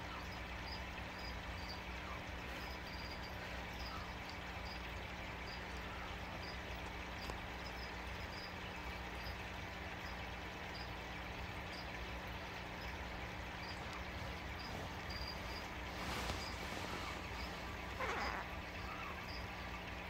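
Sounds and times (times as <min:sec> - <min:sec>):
aquarium equipment hum and hiss: 0:00.0 - 0:20.0
faint high-pitched chirps: 0:11.7 - 0:19.7.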